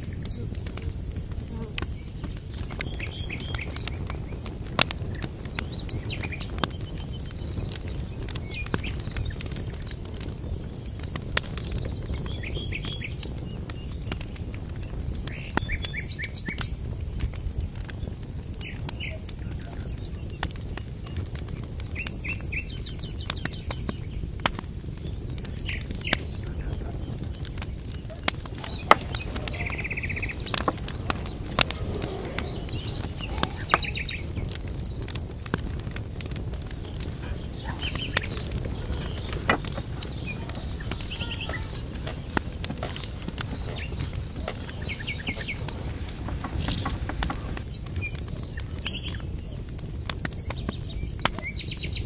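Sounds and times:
small birds chirping: 0:00.0 - 0:16.8, 0:18.0 - 0:52.0
low background rumble: 0:26.6 - 0:47.8.

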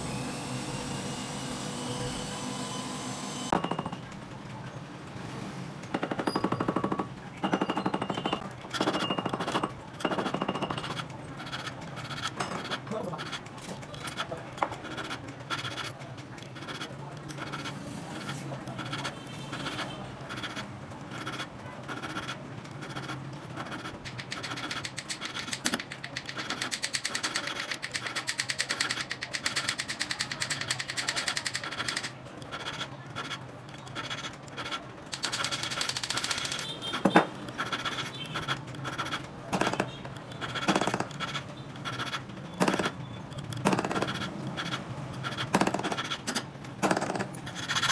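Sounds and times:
metal scraping and clicking: 0:05.8 - 0:47.9.

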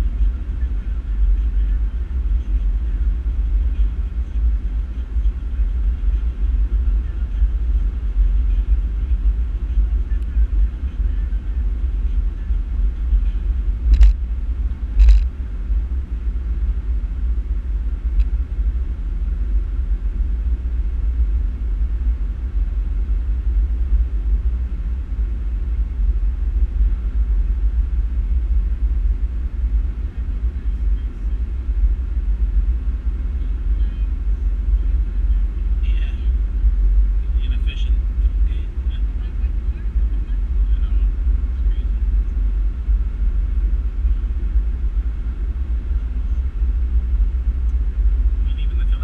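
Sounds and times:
car driving rumble: 0:00.0 - 0:49.0.

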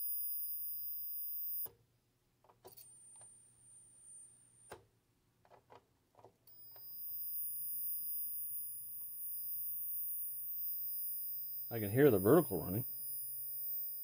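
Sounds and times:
high-pitched oscillator squeal: 0:06.9 - 0:14.0.

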